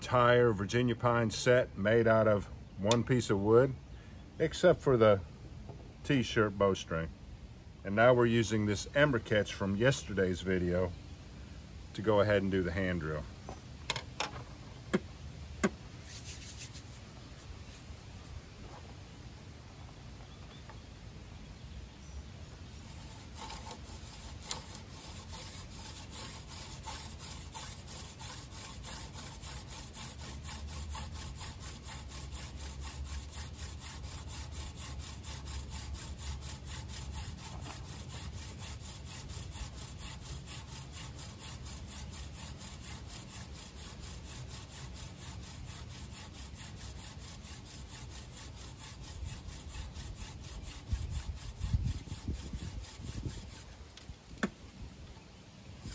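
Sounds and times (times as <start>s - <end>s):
wood grinding on wood: 22.5s - 54.5s.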